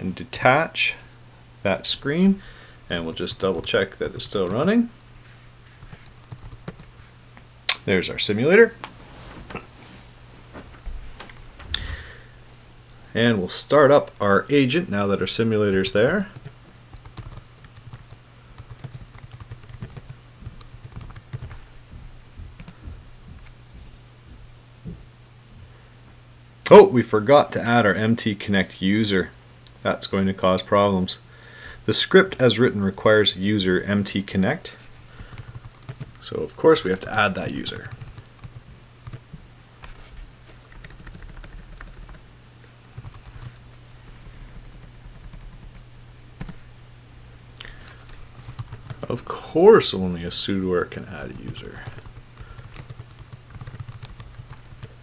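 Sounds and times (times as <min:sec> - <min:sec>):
steady low hum: 0:00.0 - 0:55.0
computer keyboard typing: 0:03.4 - 0:04.7, 0:05.8 - 0:06.9, 0:16.4 - 0:21.6, 0:22.6 - 0:22.8, 0:35.3 - 0:36.1, 0:37.7 - 0:39.2, 0:40.7 - 0:42.2, 0:42.9 - 0:43.6, 0:44.5 - 0:45.8, 0:47.8 - 0:49.1, 0:51.3 - 0:55.0.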